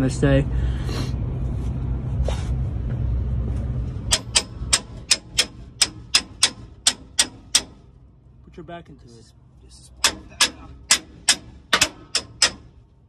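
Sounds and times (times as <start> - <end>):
hammer striking metal springs: 4.1 - 7.9, 10.0 - 12.9.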